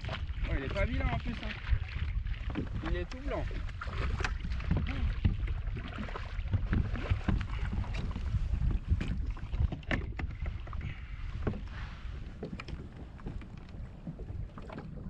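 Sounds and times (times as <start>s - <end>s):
wind buffeting microphone: 0.0s - 15.0s
sharp knocks and clicks: 9.7s - 10.4s.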